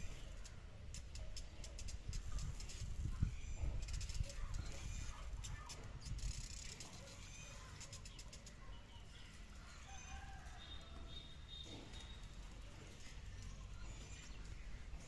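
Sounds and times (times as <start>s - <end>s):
distant birds chirping: 7.0s - 15.0s.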